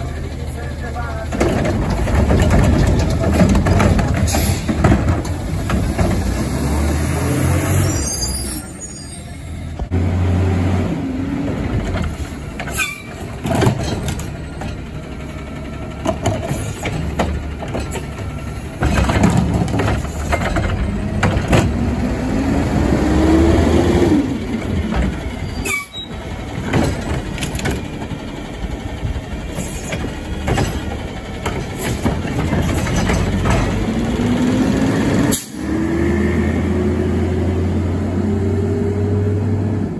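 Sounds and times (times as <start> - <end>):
metal clanks of carts: 0.0 - 6.8, 11.7 - 22.0, 24.6 - 35.6
diesel engine revving: 0.0 - 39.9.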